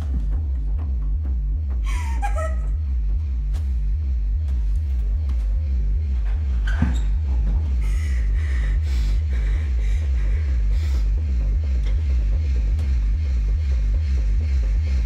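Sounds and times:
pulsing bass drone: 0.0s - 15.0s.

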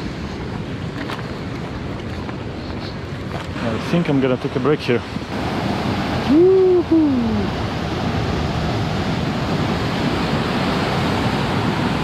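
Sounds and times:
ocean surf breaking on rocks: 0.0s - 12.0s
man whooping: 6.2s - 7.5s.

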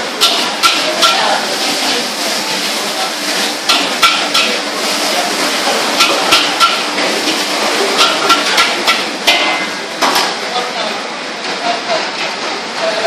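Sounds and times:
frying hiss: 0.0s - 13.0s
metal spatula clanging on wok: 0.2s - 1.3s, 3.7s - 4.6s, 6.0s - 7.4s, 8.0s - 9.8s.

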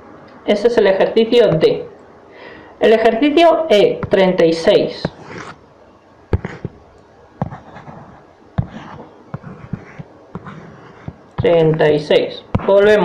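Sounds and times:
stylus tapping on tablet screen: 6.3s - 6.8s, 7.4s - 11.9s.

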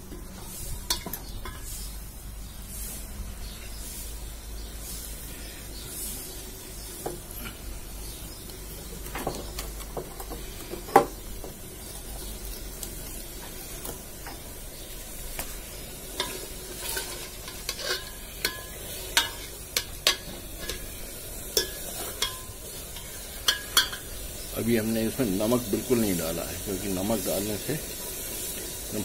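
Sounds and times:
steady sizzle: 0.0s - 29.0s
metal ladle scraping a metal pot: 16.1s - 24.1s.

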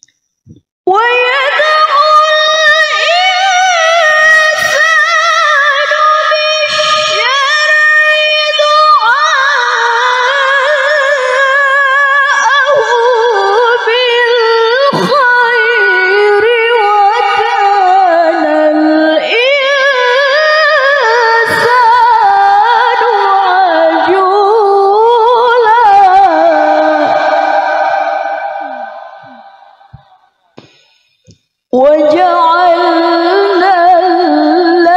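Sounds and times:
woman reciting melodically: 0.9s - 30.8s, 31.7s - 34.9s.

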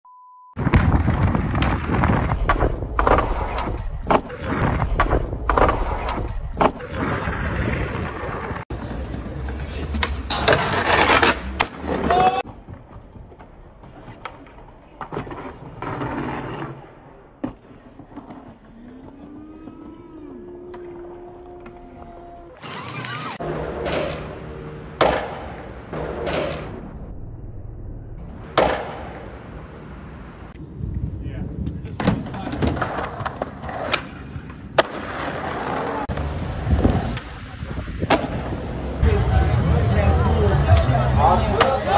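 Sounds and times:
skateboard wheels rolling on concrete: 0.6s - 26.8s, 28.3s - 41.9s
skateboard grinding on stone ledge: 10.3s - 12.4s, 15.2s - 16.8s
skateboard clacking: 32.2s - 39.0s.

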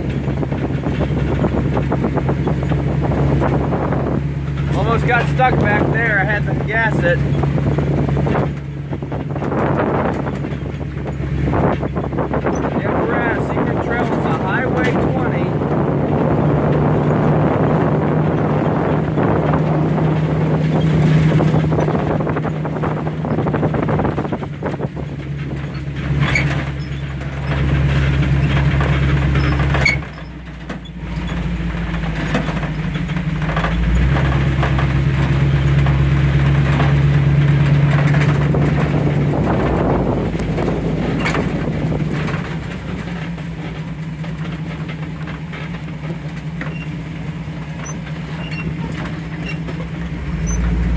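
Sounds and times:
vehicle engine running: 0.0s - 50.9s
clicks and knocks: 24.1s - 50.9s.

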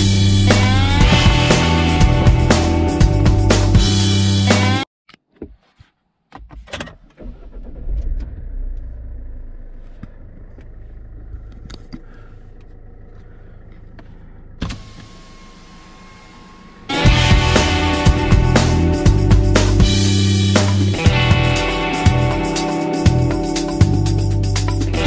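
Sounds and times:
engine and tyre rumble: 0.0s - 3.7s, 7.1s - 20.4s.

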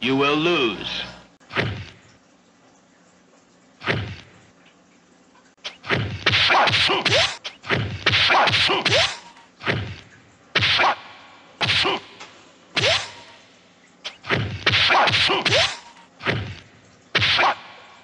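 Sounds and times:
punch hits: 5.8s - 10.0s, 10.6s - 12.0s, 12.8s - 13.2s, 14.3s - 16.6s, 17.2s - 17.6s.

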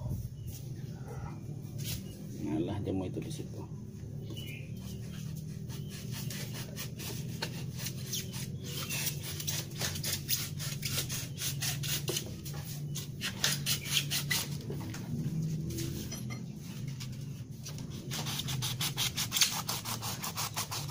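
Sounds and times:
knife sawing scraping strokes: 4.7s - 14.6s, 17.7s - 20.9s.

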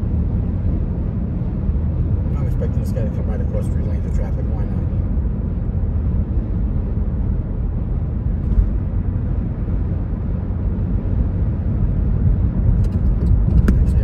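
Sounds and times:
car interior road noise: 0.0s - 14.0s.

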